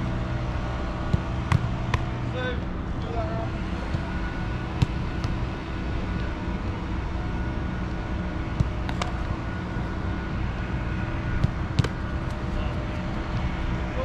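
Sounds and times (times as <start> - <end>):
low outdoor rumble: 0.0 - 14.0
soccer balls being kicked: 0.9 - 2.3, 3.6 - 5.6, 8.4 - 9.3, 11.2 - 13.8.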